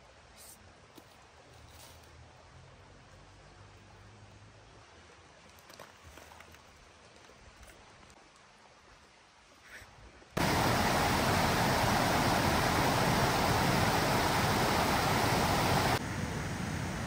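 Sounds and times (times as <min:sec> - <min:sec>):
steady rushing noise: 0:10.4 - 0:17.0.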